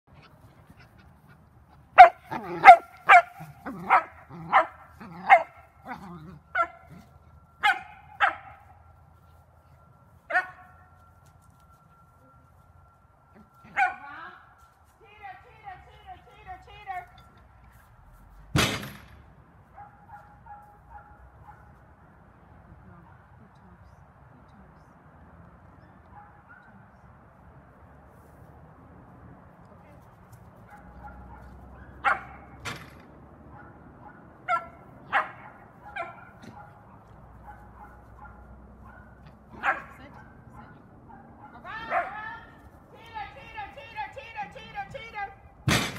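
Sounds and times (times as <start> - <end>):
small dog barking: 2.0 - 6.9, 7.6 - 8.6, 30.6 - 32.6, 33.5 - 42.2.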